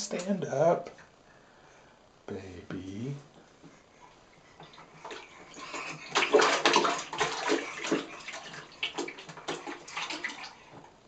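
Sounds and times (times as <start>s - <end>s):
water splashing in plastic bath: 4.6s - 10.9s.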